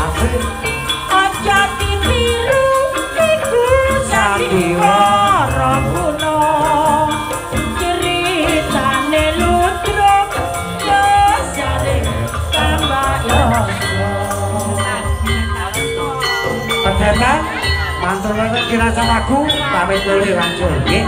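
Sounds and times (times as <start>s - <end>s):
woman singing into a microphone: 0.0s - 16.6s
percussion ensemble: 0.0s - 21.0s.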